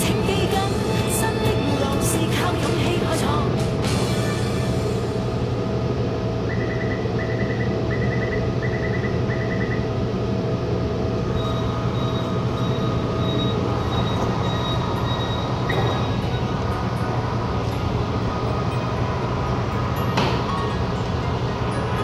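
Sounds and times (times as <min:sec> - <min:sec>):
train rumbling: 0:00.0 - 0:22.0
faint pulsing high tone: 0:05.2 - 0:21.7
high electronic beeps: 0:11.3 - 0:16.6.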